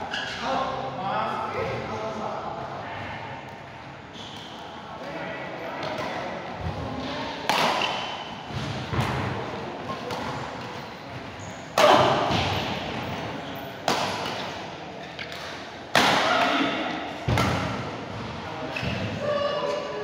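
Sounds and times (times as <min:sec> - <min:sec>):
racket hitting shuttlecock: 0:05.8 - 0:09.3, 0:13.8 - 0:17.9.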